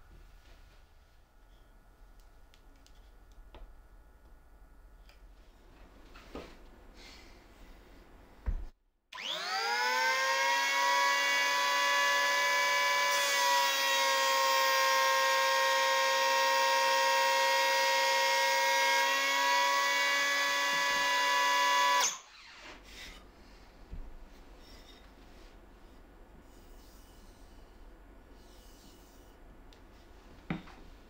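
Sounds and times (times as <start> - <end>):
electric planer motor whining: 9.2 - 22.2.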